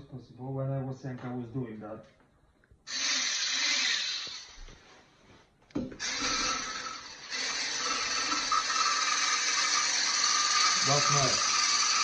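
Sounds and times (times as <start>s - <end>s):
electric mixer whining: 2.9s - 4.6s, 6.0s - 12.0s.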